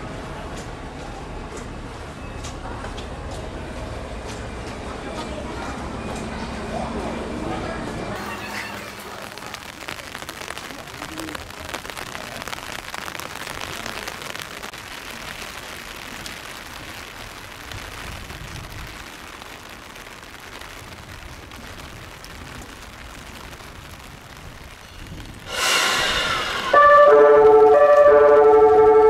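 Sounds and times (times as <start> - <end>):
steady rain falling: 0.0 - 29.0.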